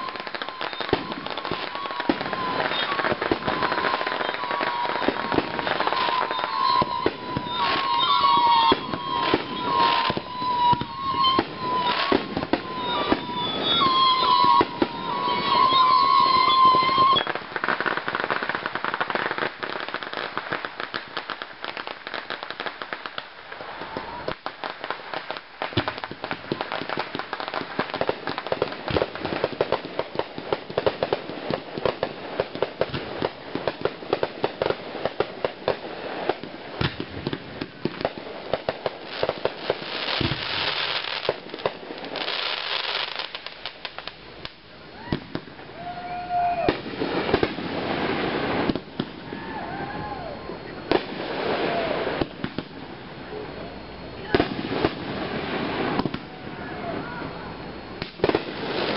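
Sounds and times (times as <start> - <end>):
crackling firework pops: 0.0 - 57.2, 57.8 - 58.9
firework bangs: 0.0 - 58.9.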